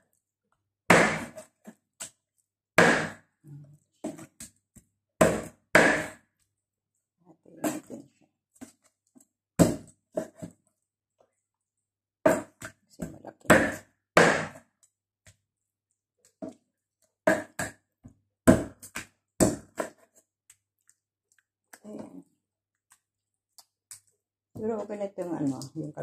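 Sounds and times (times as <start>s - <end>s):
knife chopping on wooden board: 0.9s - 1.5s, 2.8s - 3.2s, 5.2s - 6.2s, 9.6s - 10.5s, 12.3s - 14.6s, 17.3s - 17.8s, 18.4s - 20.1s.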